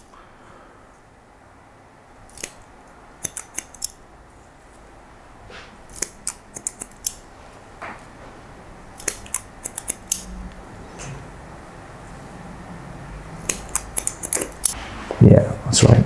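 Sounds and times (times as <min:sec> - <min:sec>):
scissors snipping hair: 0:02.3 - 0:04.0, 0:05.9 - 0:07.2, 0:09.0 - 0:10.3, 0:13.4 - 0:14.8.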